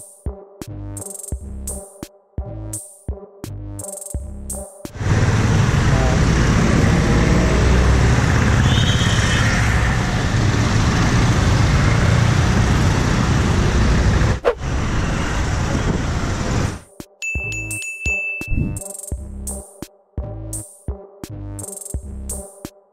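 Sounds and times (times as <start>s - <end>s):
motorcycle engine: 5.0s - 16.8s
wind rumble on microphone: 14.1s - 16.8s.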